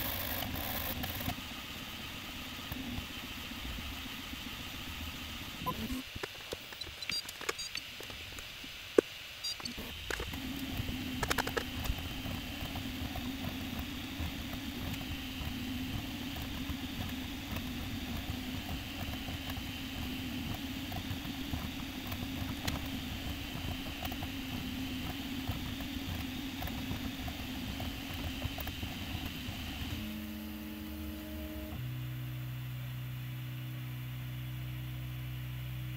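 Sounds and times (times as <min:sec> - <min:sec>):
scattered clicks: 0:00.0 - 0:01.4, 0:05.7 - 0:15.6
printer fans humming: 0:00.0 - 0:32.0
stepper motors pattering: 0:04.9 - 0:30.2.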